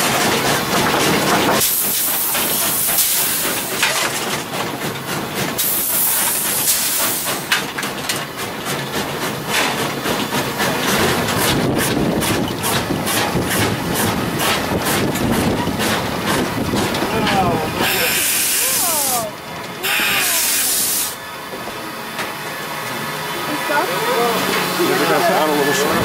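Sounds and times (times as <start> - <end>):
coal shovel clanking and scraping: 0.0 - 5.7, 6.3 - 19.3
locomotive running noise: 0.0 - 26.0
steam hissing: 1.6 - 4.0, 4.8 - 21.2.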